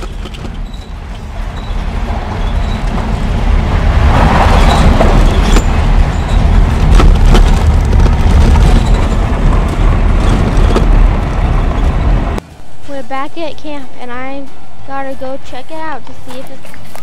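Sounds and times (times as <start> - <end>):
truck engine and tyres rumbling: 0.0 - 17.0.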